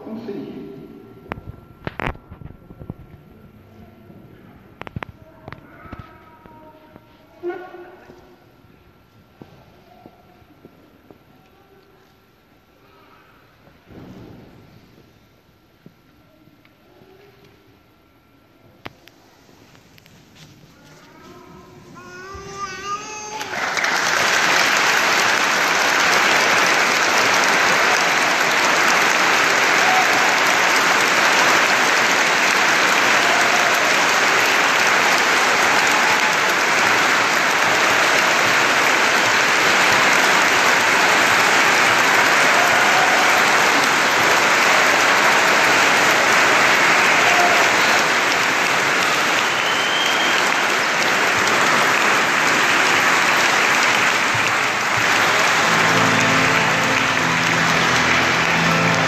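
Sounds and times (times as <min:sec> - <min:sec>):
large crowd applauding: 0:22.0 - 0:59.0.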